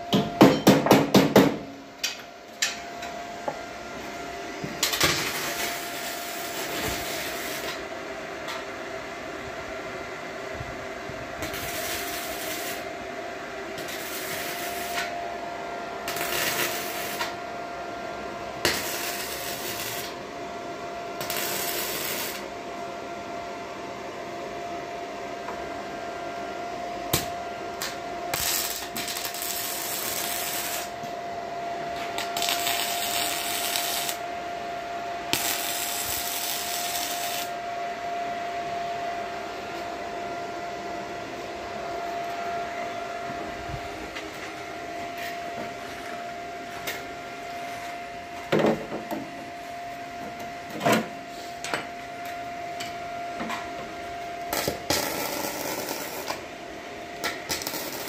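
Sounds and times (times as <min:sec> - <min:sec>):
steady hum: 0:00.0 - 0:58.0
welding arc crackling: 0:04.8 - 0:07.8, 0:11.4 - 0:12.9, 0:13.8 - 0:15.1, 0:16.0 - 0:17.4, 0:18.6 - 0:20.2, 0:21.2 - 0:22.5, 0:27.2 - 0:31.0, 0:32.2 - 0:34.2, 0:35.3 - 0:37.5, 0:54.5 - 0:56.4, 0:57.2 - 0:58.0.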